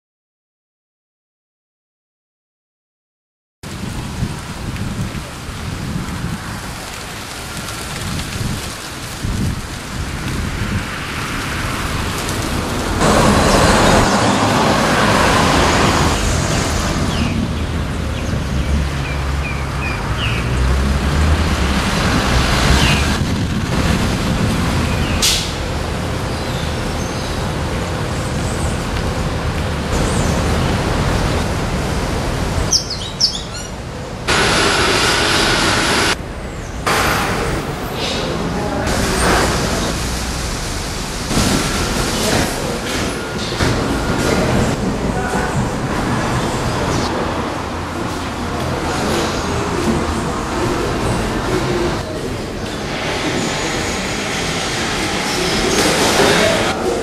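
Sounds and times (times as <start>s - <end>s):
steady rushing haze: 33.8s - 57.0s.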